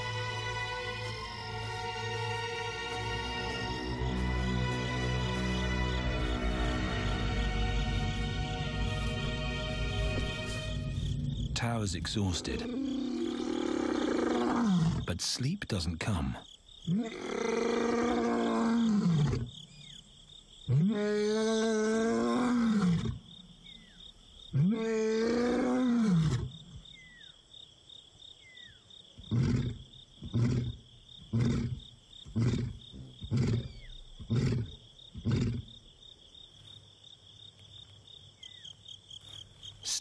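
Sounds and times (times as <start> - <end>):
lion roaring: 12.3 - 15.1, 16.9 - 19.5, 20.7 - 23.2, 24.5 - 26.6, 29.3 - 35.7
lion grunts: 29.2 - 35.7.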